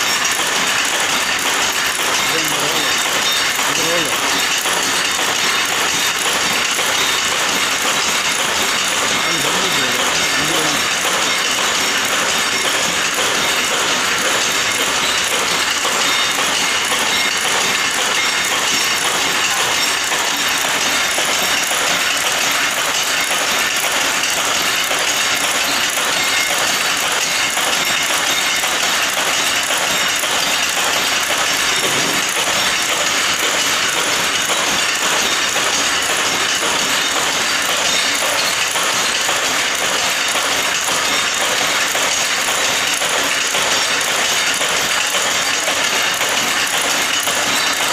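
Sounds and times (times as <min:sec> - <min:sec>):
machine metallic clatter: 0:00.0 - 0:47.9.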